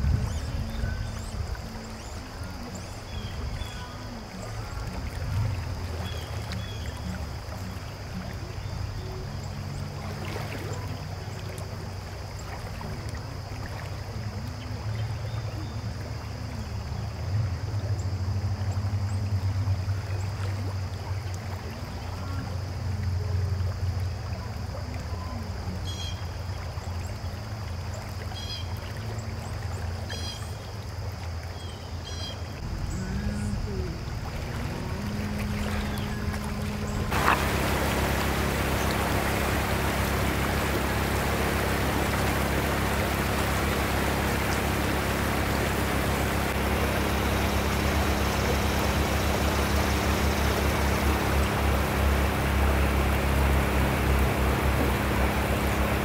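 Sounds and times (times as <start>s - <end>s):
river water flowing over rocks: 0.0s - 56.0s
low rumble: 32.6s - 56.0s.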